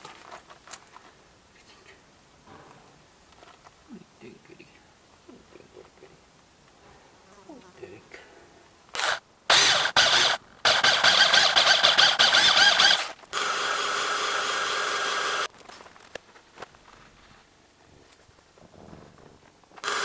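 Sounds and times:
drill eraser wheel squealing: 0:09.0 - 0:15.5
heat gun blowing: 0:09.0 - 0:15.5, 0:19.8 - 0:20.0.

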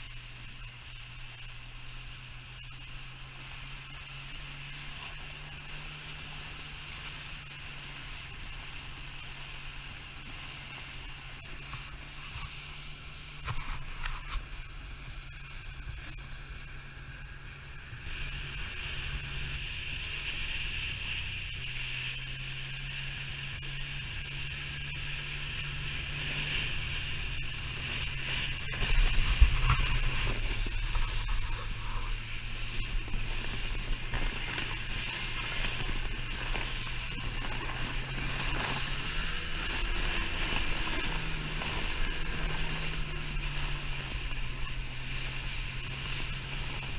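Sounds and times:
sled sliding over snow: 0:00.0 - 0:46.9
snowmobile engine droning: 0:00.0 - 0:46.9
low rumble: 0:23.2 - 0:46.9.

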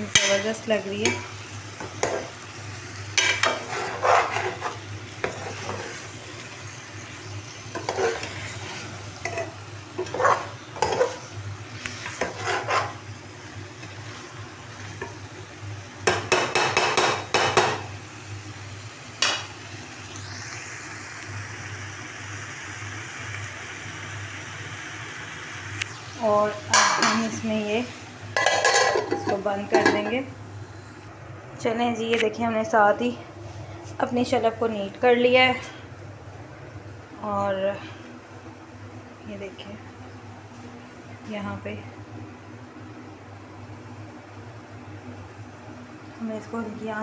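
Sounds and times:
oil sizzling: 0:00.0 - 0:31.1
utensil scraping metal pot: 0:03.2 - 0:06.1, 0:07.7 - 0:11.3, 0:12.0 - 0:13.0.

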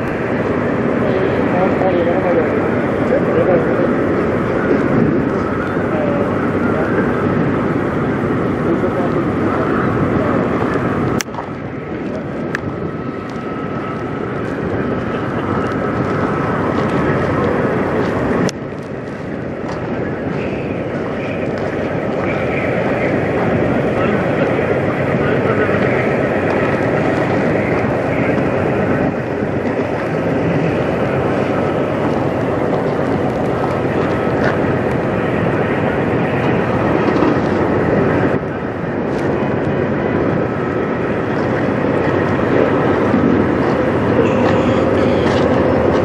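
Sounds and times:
thin steady whine: 0:00.0 - 0:46.0
truck engine running: 0:00.0 - 0:46.0
truck diesel engine idling: 0:37.6 - 0:46.0.

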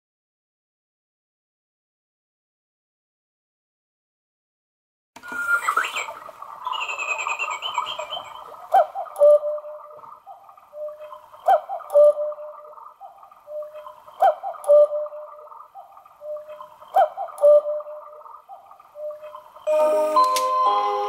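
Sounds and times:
high chirping: 0:05.2 - 0:10.0
cuckoo clock call: 0:05.2 - 0:21.0.

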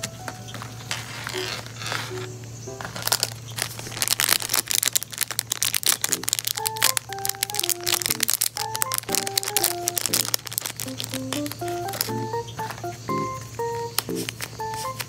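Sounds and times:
plastic bag crinkling: 0:00.5 - 0:12.8
background music: 0:06.1 - 0:15.0.

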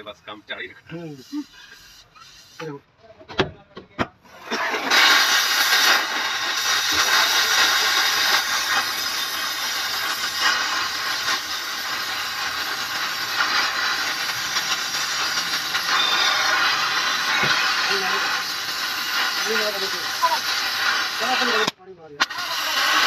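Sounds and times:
gas hissing under pressure: 0:00.0 - 0:02.9, 0:04.2 - 0:23.0.

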